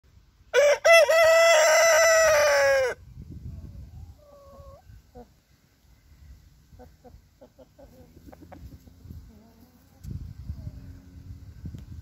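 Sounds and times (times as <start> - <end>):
rooster crowing: 0.5 - 3.0
chicken calls: 0.5 - 11.2.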